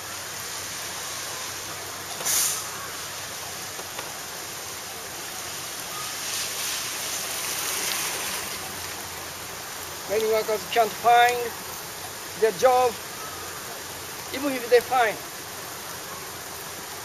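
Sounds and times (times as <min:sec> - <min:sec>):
heavy rain and wind: 0:00.0 - 0:17.0
short sharp hiss: 0:00.6 - 0:03.1, 0:06.0 - 0:08.3.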